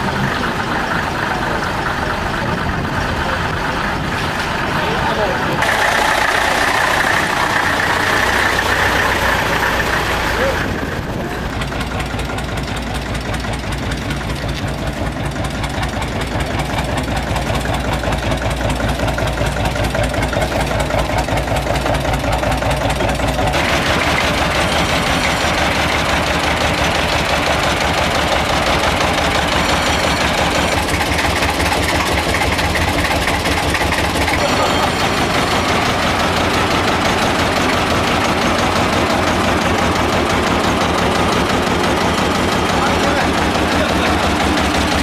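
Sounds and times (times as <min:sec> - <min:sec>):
tractor engines idling: 0:00.0 - 0:45.0.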